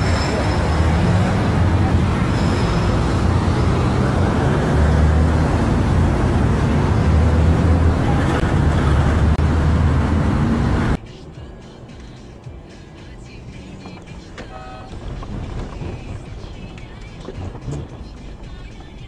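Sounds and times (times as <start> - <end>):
highway traffic noise: 0.0 - 19.0
low engine rumble: 0.0 - 19.0.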